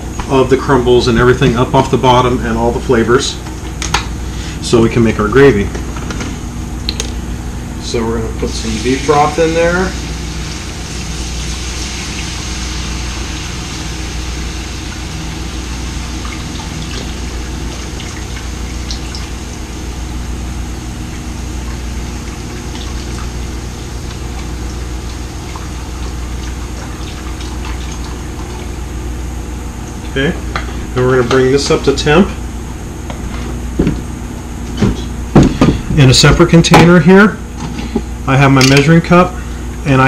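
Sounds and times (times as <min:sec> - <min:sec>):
steady low hum: 0:00.0 - 0:40.0
broth sizzling in a skillet: 0:08.5 - 0:20.0.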